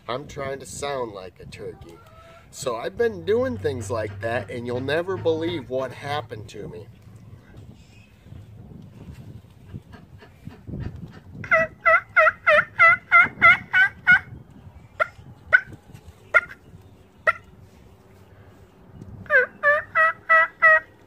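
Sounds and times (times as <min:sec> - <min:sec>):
turkey call yelps: 0:11.4 - 0:14.3, 0:17.2 - 0:17.4, 0:19.3 - 0:20.9.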